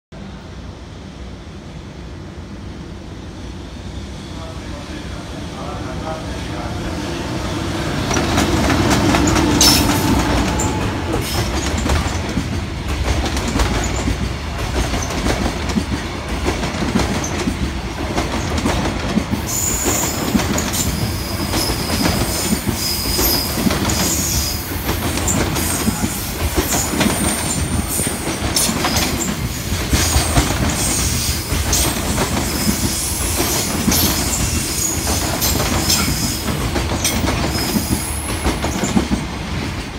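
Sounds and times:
freight train rumbling past: 0.2s - 39.9s
wheel clacks over rail joints: 8.1s - 19.3s, 24.9s - 39.3s.

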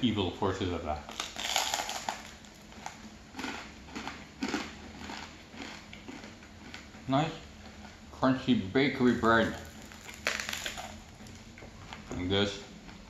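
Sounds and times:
crunchy bread bite and chewing: 1.1s - 7.0s, 9.5s - 12.0s.

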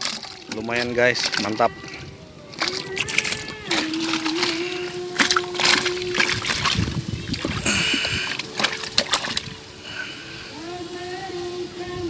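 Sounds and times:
fish splashing in water bucket: 0.0s - 10.0s.

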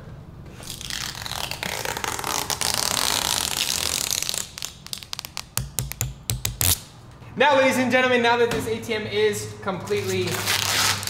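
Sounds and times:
plastic wrapping crinkling: 0.7s - 5.6s.

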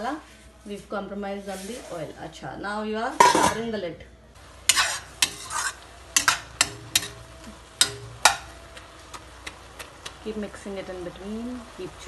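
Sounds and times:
masala sizzling: 0.0s - 3.8s, 4.4s - 12.0s
spatula scraping metal pan: 4.6s - 8.5s.

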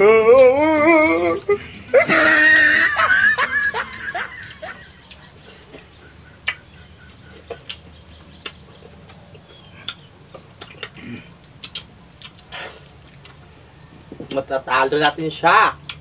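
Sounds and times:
short falling vocal sounds: 0.0s - 2.6s
mouth smacks and clicks eating: 3.8s - 13.5s, 15.8s - 16.0s.

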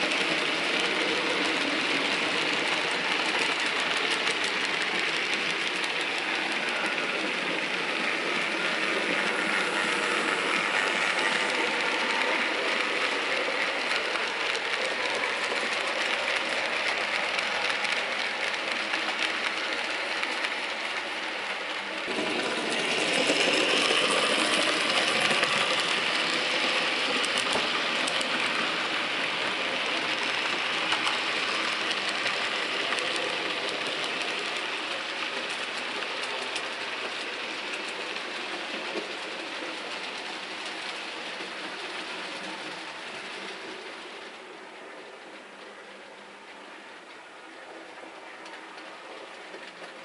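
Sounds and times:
model train wheels rattling: 0.0s - 44.4s
rail joint clicks: 22.4s - 34.4s.

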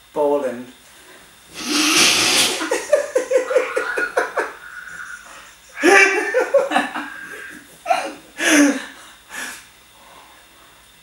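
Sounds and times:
men laughing: 1.6s - 8.9s.

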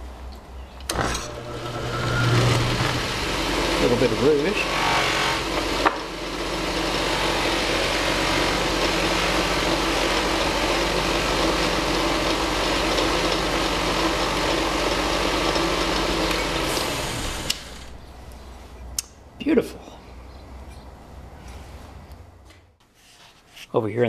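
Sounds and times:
polishing machine whirring: 0.9s - 18.0s.

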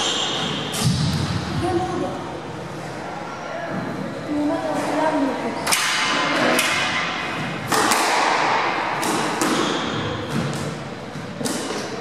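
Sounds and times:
squash ball hits echoing: 0.0s - 1.7s, 5.6s - 12.0s.

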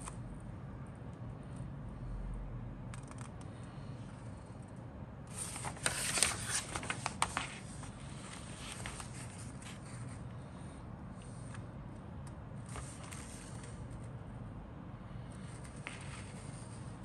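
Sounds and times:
faint low hum: 0.0s - 17.0s
paper rustling and crinkling: 5.3s - 10.2s, 12.7s - 13.8s, 15.5s - 16.9s.

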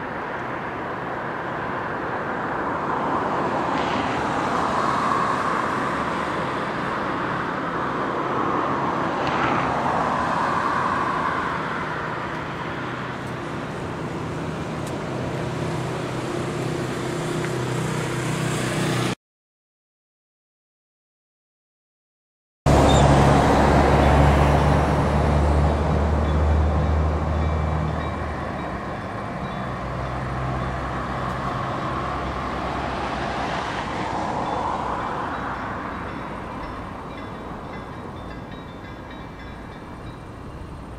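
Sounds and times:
cars passing: 0.0s - 19.2s, 22.7s - 40.9s
road noise: 0.0s - 19.2s, 22.7s - 40.9s
steady engine hum: 0.0s - 19.2s, 22.7s - 40.9s
train rushing: 22.7s - 40.9s.

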